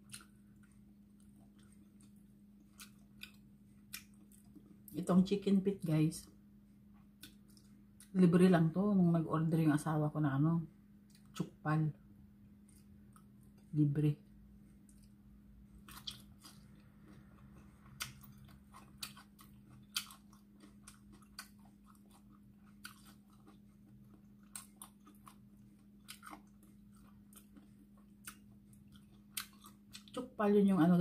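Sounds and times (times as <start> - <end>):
chewing and gnawing: 0.0 - 5.0, 7.0 - 8.1, 12.6 - 13.8, 14.6 - 30.4
low steady hum: 0.0 - 31.0.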